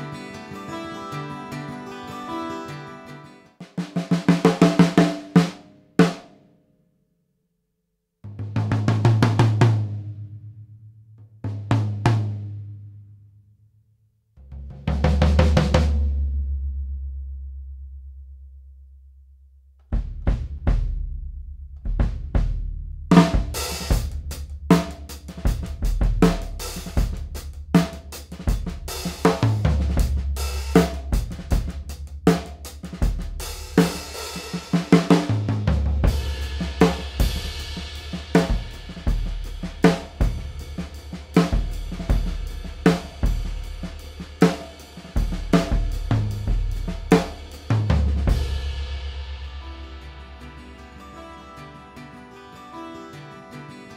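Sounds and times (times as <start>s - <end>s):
drum kit played with sticks: 3.6s - 6.4s, 8.3s - 10.4s, 11.4s - 12.8s, 14.5s - 16.6s, 19.9s - 51.2s.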